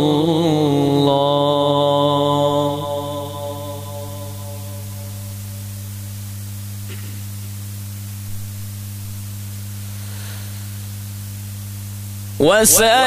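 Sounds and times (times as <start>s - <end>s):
mains hum and hiss: 0.0s - 13.0s.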